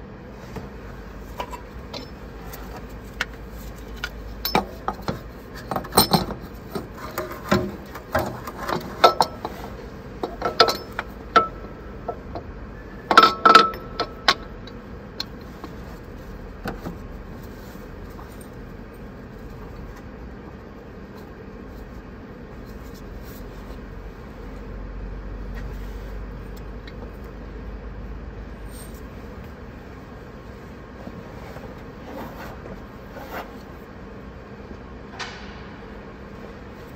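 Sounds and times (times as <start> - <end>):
metal tools clinking and knocking: 4.4 - 5.1, 5.7 - 6.4, 10.2 - 11.6.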